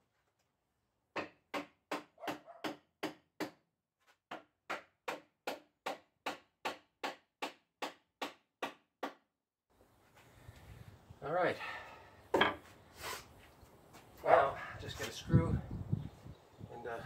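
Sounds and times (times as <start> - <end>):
hammering on wooden workbench: 1.1 - 3.6, 4.3 - 9.2.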